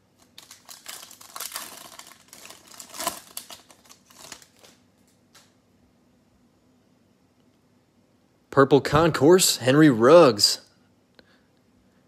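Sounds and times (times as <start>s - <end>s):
foil wrapper crinkling and tearing: 0.2s - 5.1s.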